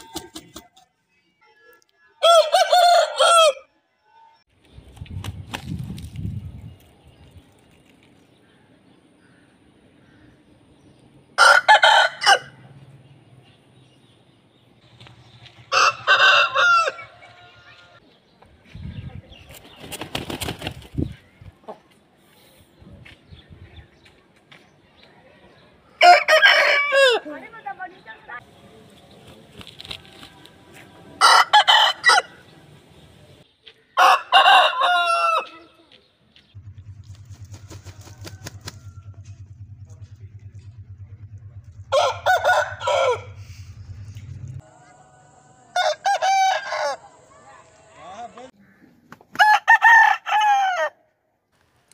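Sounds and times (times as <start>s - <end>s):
rooster crowing: 2.2s - 3.7s, 11.4s - 12.6s, 15.7s - 18.0s, 26.0s - 27.2s, 34.0s - 35.6s, 37.4s - 39.6s, 41.8s - 44.0s, 44.6s - 47.6s, 49.4s - 51.0s
low hum with rapid ticking: 36.6s - 44.6s.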